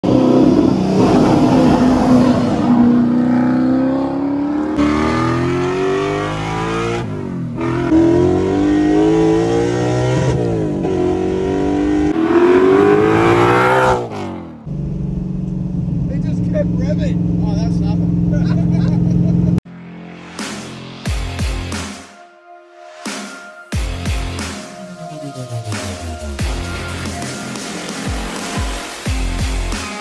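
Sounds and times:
car engine accelerating hard: 0.0s - 19.6s.

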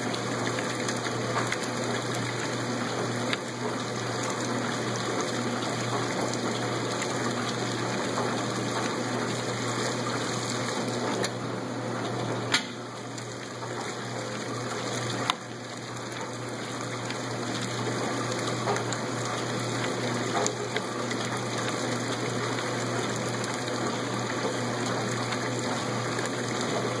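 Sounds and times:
washing machine hum: 0.0s - 27.0s
water rushing: 0.1s - 11.4s
washer click: 12.5s - 12.8s.

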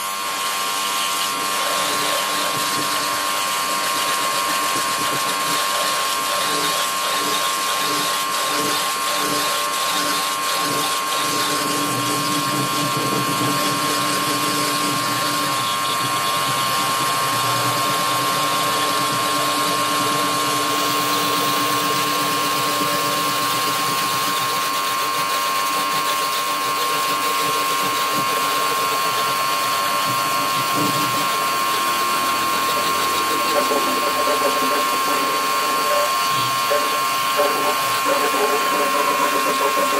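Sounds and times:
pressure washer motor whine: 0.0s - 39.9s.

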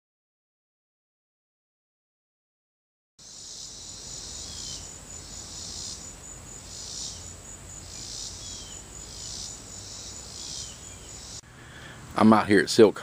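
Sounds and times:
insects chirring: 3.2s - 11.8s.

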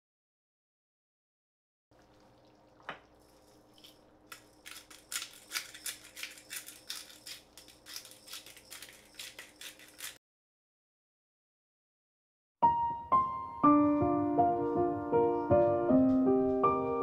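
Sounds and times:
hot oil sizzling and popping: 2.0s - 5.8s.

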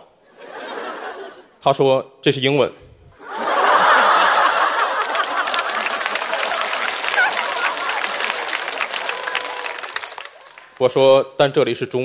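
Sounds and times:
audience laughing: 0.3s - 1.6s, 3.2s - 10.8s
audience clapping: 3.4s - 11.0s.

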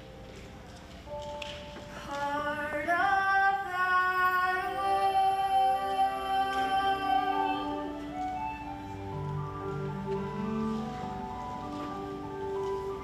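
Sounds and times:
musical accompaniment: 0.0s - 13.0s
woman singing long notes: 2.0s - 8.2s.

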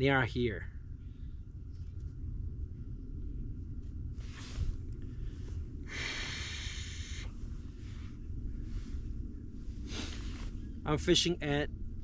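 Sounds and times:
wind buffeting microphone: 0.8s - 12.0s
person breathing out: 5.8s - 7.4s.

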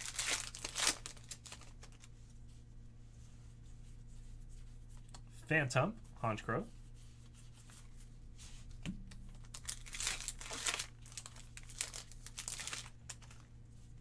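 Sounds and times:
foil wrapper crinkling and tearing: 0.0s - 2.1s, 9.3s - 13.5s.

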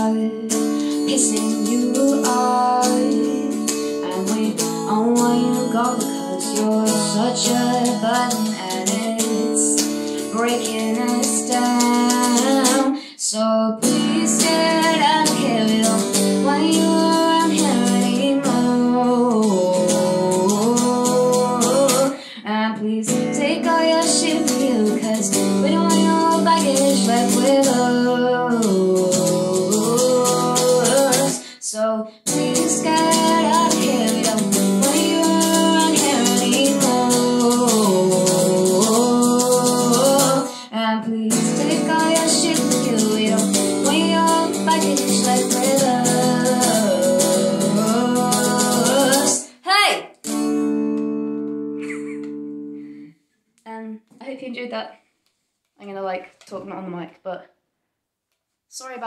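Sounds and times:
woman singing: 0.0s - 50.0s
electric guitar: 13.8s - 22.3s, 23.1s - 31.5s, 32.3s - 40.6s, 41.3s - 49.6s, 50.2s - 53.1s.

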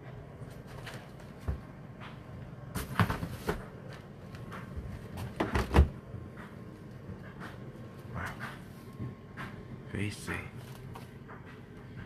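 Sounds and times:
knocks and clatter of handling: 0.5s - 7.6s
fridge freezer door opening: 2.8s - 6.1s.

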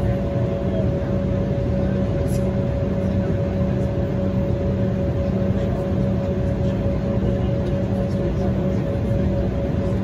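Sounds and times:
constant mid-pitched hum: 0.0s - 10.0s
jet engine rumble and airflow: 0.0s - 10.0s.

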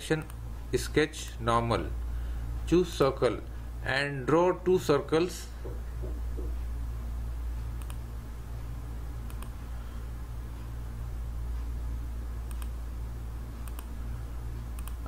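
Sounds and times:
steady low hum: 0.0s - 15.0s
computer mouse clicking: 7.8s - 8.0s, 9.2s - 9.6s, 12.4s - 12.8s, 13.6s - 13.9s, 14.7s - 15.0s.

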